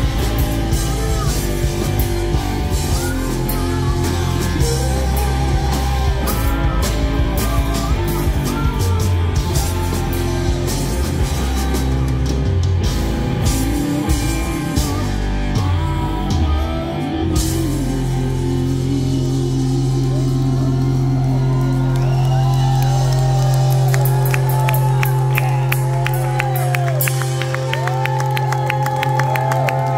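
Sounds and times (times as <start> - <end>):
man singing: 0.0 - 12.4, 13.3 - 21.6
live rock band: 0.0 - 29.9.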